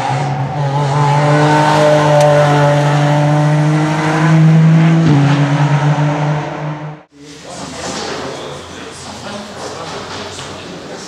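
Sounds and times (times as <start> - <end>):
race car engine revving high: 0.0 - 7.1.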